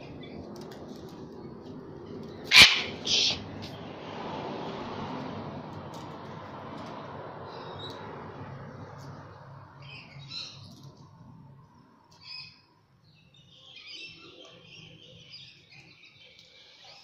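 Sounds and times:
cockatoos chirping: 0:02.4 - 0:03.8.

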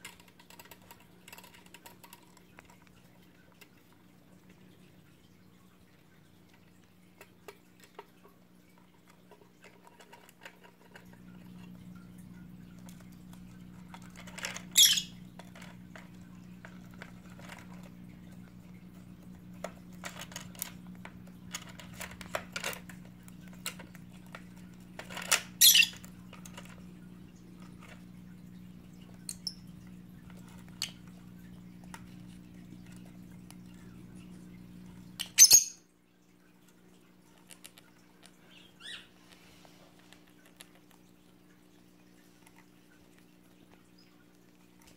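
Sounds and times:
bird squawks: 0:14.8 - 0:15.2, 0:25.6 - 0:26.0.

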